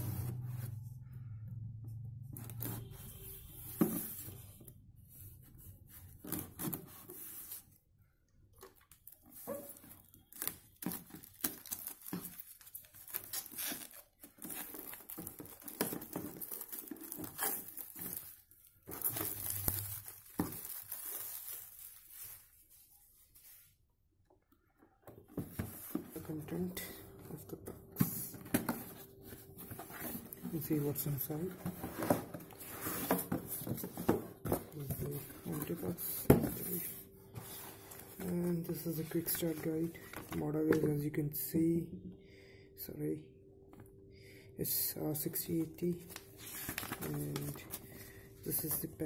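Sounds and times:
plastic shrink-wrap tearing: 11.2s - 15.7s, 19.0s - 22.1s.

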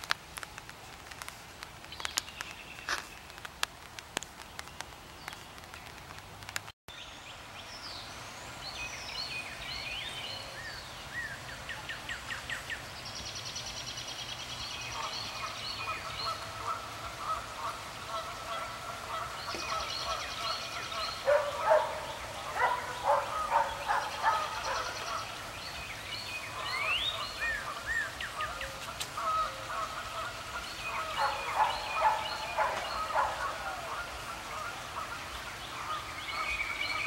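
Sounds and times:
faint hiss: 0.0s - 37.0s
rain dripping: 0.0s - 37.0s
birds chirping: 1.2s - 37.0s
waterfowl calling: 14.8s - 37.0s.

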